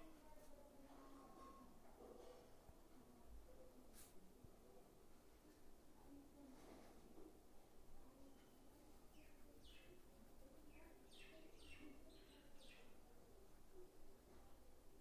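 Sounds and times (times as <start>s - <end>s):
faint bird chirps: 8.2s - 13.1s.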